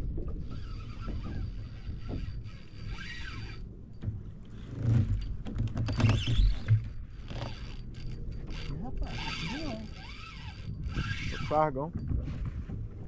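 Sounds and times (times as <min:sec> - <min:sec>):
fishing reel cranking: 0:00.4 - 0:03.7, 0:05.2 - 0:11.7.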